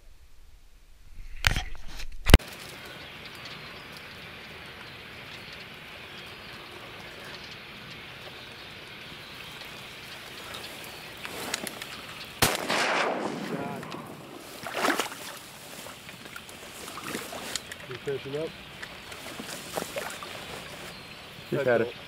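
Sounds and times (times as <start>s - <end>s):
wind through dry reeds: 0.0s - 22.0s
faint ticks: 2.5s - 8.4s, 16.0s - 18.1s
rustling: 10.1s - 21.2s
sharp crack: 11.2s - 15.4s.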